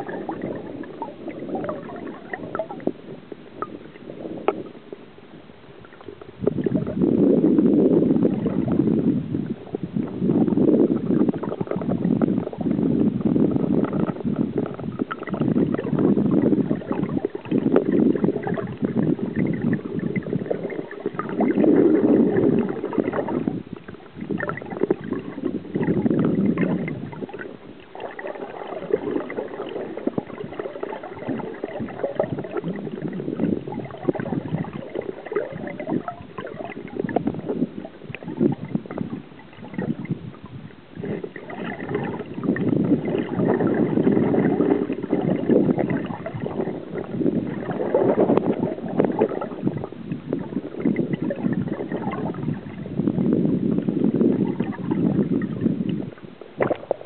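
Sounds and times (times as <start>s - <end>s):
river water gurgling and rushing: 0.0s - 57.0s.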